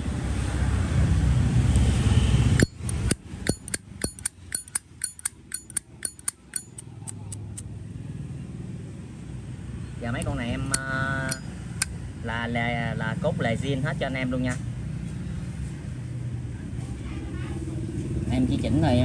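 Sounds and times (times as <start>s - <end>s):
lighter lid clicking open and shut: 2.6s - 7.6s.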